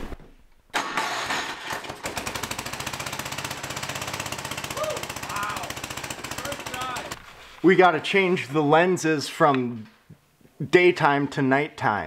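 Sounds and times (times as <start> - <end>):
electric starter cranking engine: 0.7 - 7.3
snowblower engine running: 0.8 - 7.5.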